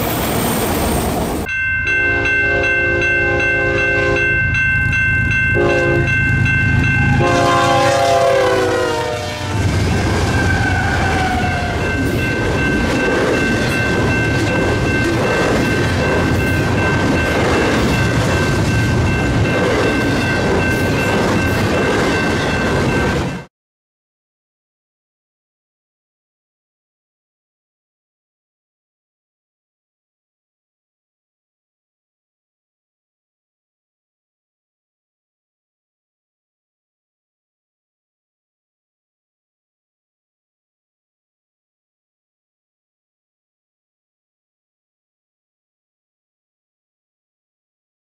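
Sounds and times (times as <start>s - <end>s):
locomotive air horn blasts: 2.2s - 4.3s, 5.6s - 6.2s, 7.0s - 9.8s.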